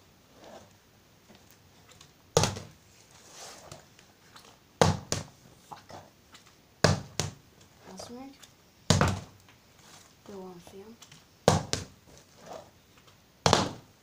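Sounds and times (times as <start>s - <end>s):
plastic bottle landing on floor: 2.4s - 2.7s, 8.9s - 9.4s, 13.4s - 13.9s.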